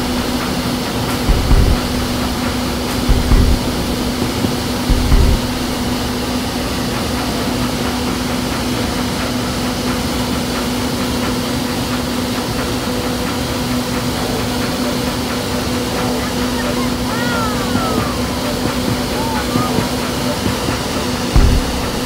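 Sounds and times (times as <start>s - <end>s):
low thumps: 0.0s - 6.0s, 21.3s - 22.0s
rushing air: 0.0s - 6.8s
low fan hum: 0.0s - 22.0s.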